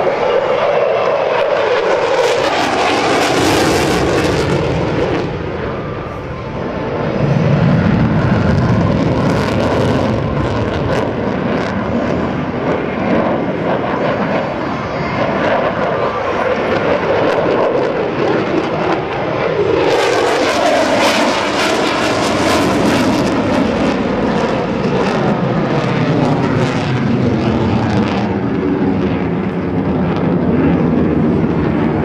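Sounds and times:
jet flying overhead: 0.0 - 32.0.

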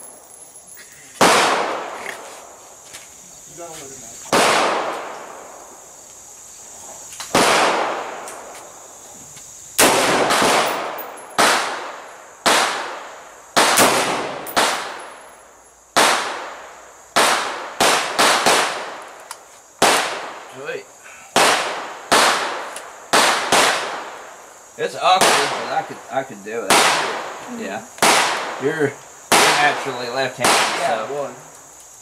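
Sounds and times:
rifle shots with echo: 1.2 - 2.0, 4.3 - 5.6, 7.3 - 8.4, 9.8 - 15.3, 16.0 - 16.6, 17.2 - 19.1, 19.8 - 20.5, 21.4 - 24.3, 26.7 - 27.4, 28.0 - 28.6, 29.3 - 31.0.

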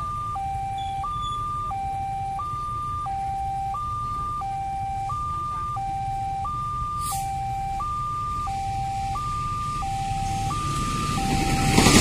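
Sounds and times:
level crossing two-tone alarm: 0.0 - 12.0
train rushing: 10.2 - 12.0.

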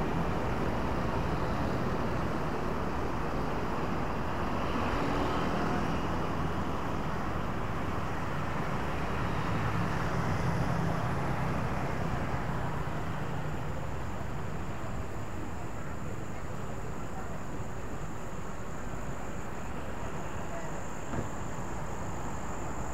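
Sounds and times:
cars and motorbikes driving: 0.0 - 17.3.

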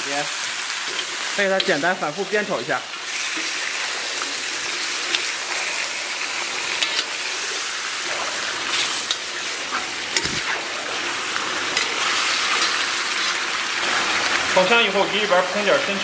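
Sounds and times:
meat sizzling in hot oil: 0.0 - 16.0
metal spatula scraping a pan: 3.3 - 11.0, 11.6 - 13.5.

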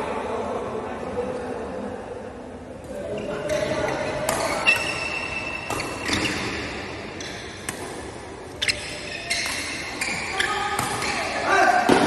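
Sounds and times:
shoes squeaking on court: 3.1 - 7.8, 8.5 - 11.4
rackets hitting shuttlecock: 4.1 - 12.0.

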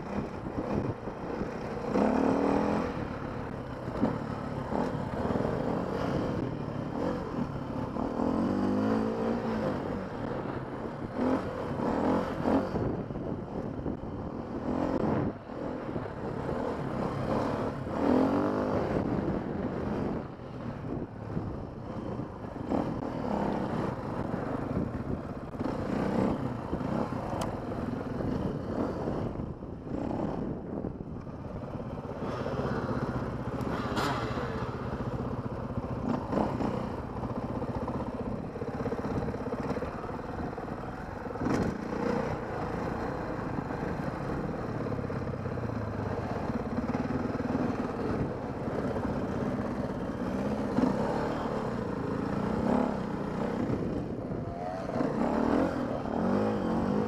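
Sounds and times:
dirt bike engine revving: 1.6 - 7.2, 32.2 - 57.0.

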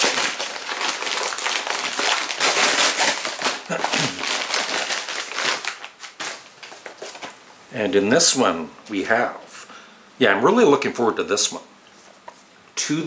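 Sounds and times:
packaging crinkling and tearing: 0.0 - 7.4.

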